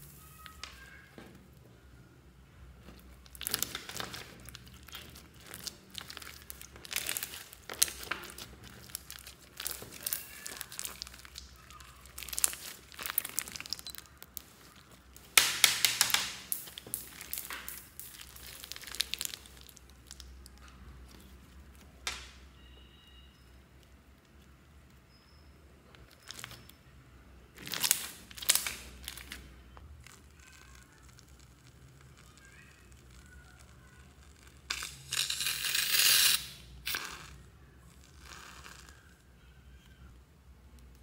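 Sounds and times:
slime squishing and clicking: 0:02.8 - 0:22.3.

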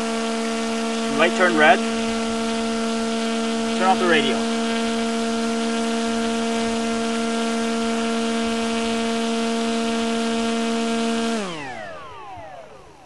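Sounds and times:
model airplane motor whining: 0:00.0 - 0:13.0
motor winding down: 0:00.0 - 0:13.0.

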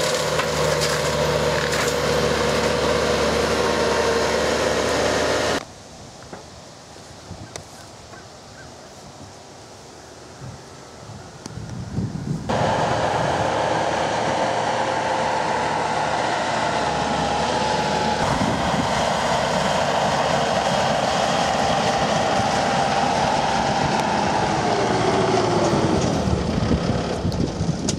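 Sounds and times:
brush cutter machine drone and whine: 0:00.0 - 0:05.6, 0:12.5 - 0:27.9.

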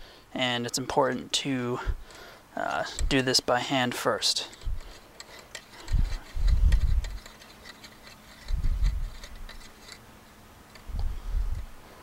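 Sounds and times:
low rubbing of threading: 0:04.5 - 0:12.0.

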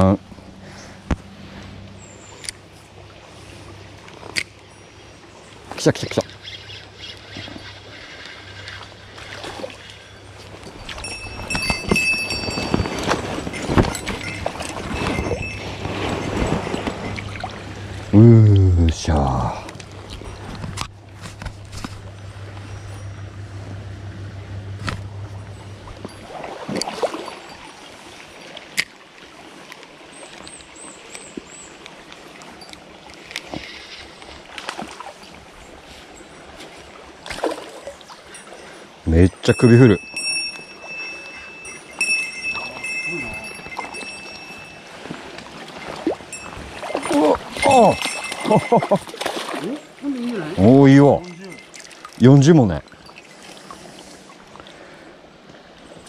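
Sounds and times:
water sloshing and gurgling: 0:00.0 - 0:56.0
fish splashing at water surface: 0:26.0 - 0:27.7, 0:37.2 - 0:38.6, 0:43.5 - 0:50.4.

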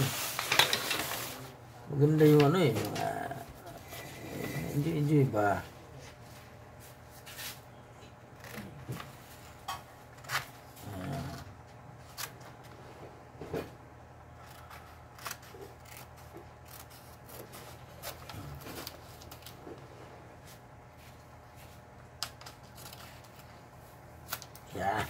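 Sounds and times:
paper rustling: 0:00.0 - 0:01.5.

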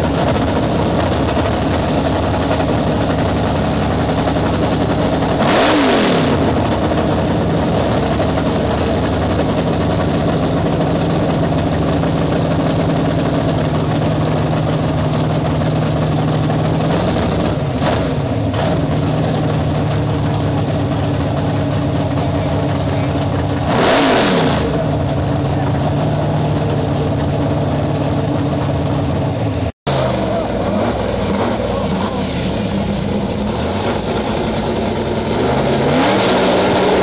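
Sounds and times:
race car engine idling and revving: 0:00.0 - 0:37.0.

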